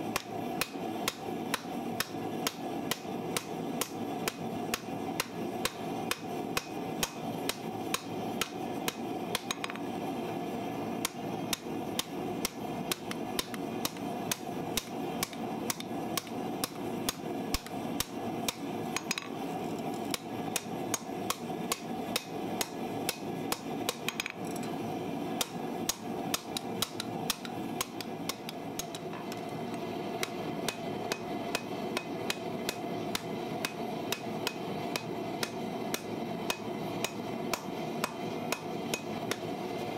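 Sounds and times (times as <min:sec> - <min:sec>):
steady background noise: 0:00.0 - 0:39.9
hammer striking steel on anvil: 0:00.1 - 0:09.8, 0:11.0 - 0:19.4, 0:25.4 - 0:29.4, 0:30.2 - 0:39.4.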